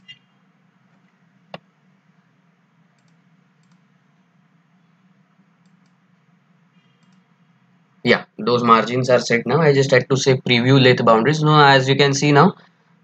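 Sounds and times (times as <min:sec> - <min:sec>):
low steady hum: 0:00.0 - 0:13.0
computer mouse clicks: 0:03.0 - 0:03.9, 0:05.6 - 0:06.0, 0:06.9 - 0:07.3.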